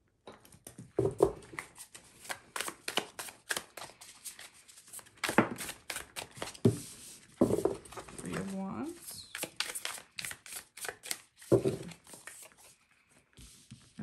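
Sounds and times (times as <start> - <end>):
cards being shuffled: 1.4 - 7.0, 7.6 - 12.8.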